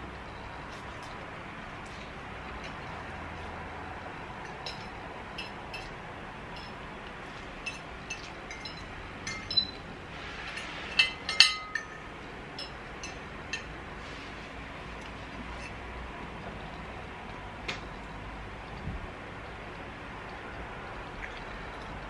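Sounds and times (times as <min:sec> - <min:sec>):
cutlery clinking on plates: 0:04.5 - 0:06.0, 0:07.6 - 0:09.8, 0:10.5 - 0:13.7.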